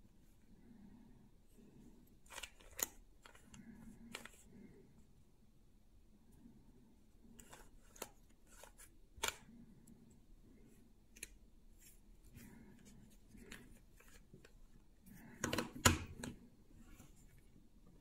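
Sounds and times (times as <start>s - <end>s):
puzzle cube plastic clicks: 2.2s - 4.4s, 7.4s - 9.5s.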